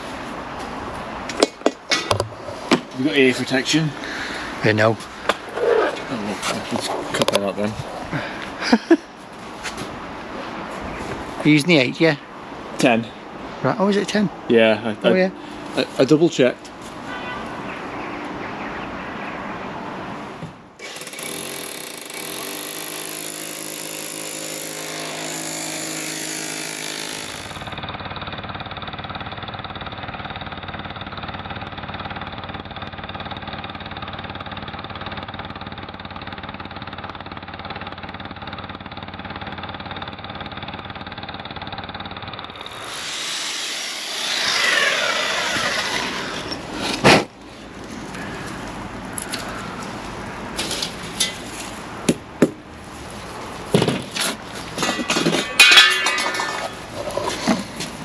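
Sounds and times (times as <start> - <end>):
hammer drill drilling into brick: 20.8 - 27.8, 42.4 - 47.0.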